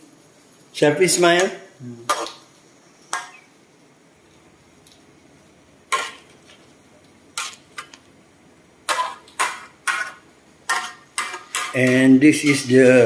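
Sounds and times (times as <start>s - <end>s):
metal utensils clinking on wok: 5.9s - 6.2s, 8.9s - 13.0s.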